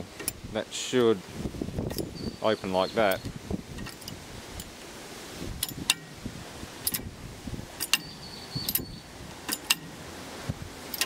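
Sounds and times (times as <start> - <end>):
wind rumbling on microphone: 0.0 - 11.0
metal hopper gates clacking: 9.5 - 10.0.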